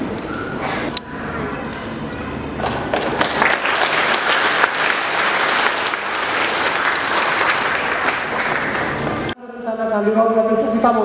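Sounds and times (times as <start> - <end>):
audience clapping: 2.6 - 9.4.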